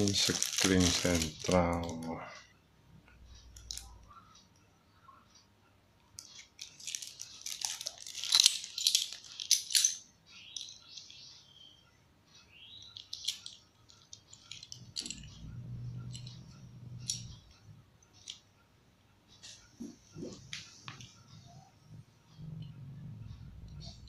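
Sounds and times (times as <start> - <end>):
plastic bag crinkling: 0.0 - 2.1, 6.3 - 9.8
low hum: 14.7 - 17.9, 21.1 - 24.0.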